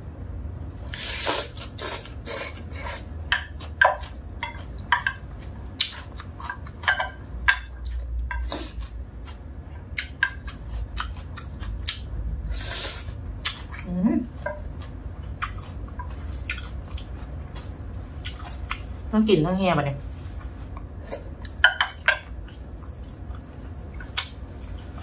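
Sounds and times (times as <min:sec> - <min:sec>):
person slurping and chewing noodles: 0:00.9 - 0:07.1, 0:07.8 - 0:19.0.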